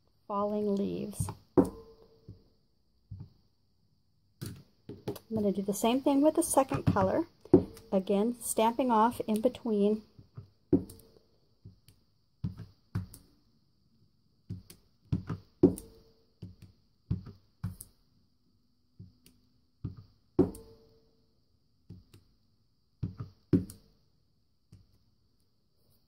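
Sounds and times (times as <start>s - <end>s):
stamp knocking and tapping: 19.8s - 20.7s.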